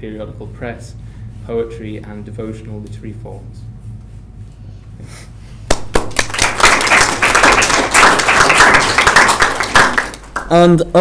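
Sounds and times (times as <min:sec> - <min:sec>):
audience applauding: 0:05.7 - 0:10.6.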